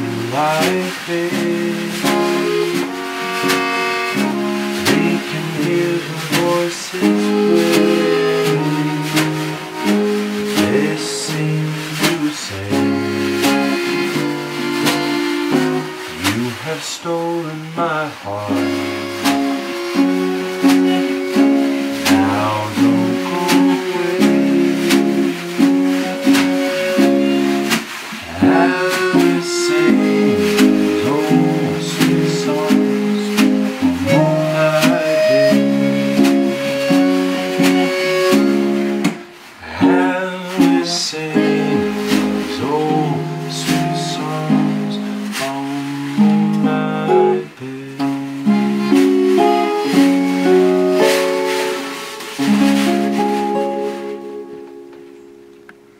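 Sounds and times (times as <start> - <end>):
accordion sustained chords: 0.0 - 16.5, 18.3 - 45.6
acoustic guitar strumming: 0.0 - 55.9.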